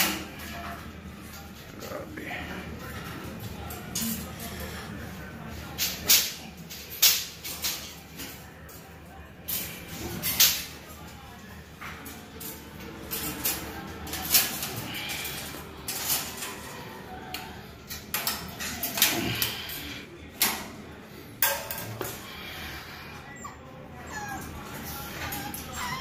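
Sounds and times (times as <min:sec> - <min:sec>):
puppy whines: 0:23.2 - 0:26.0.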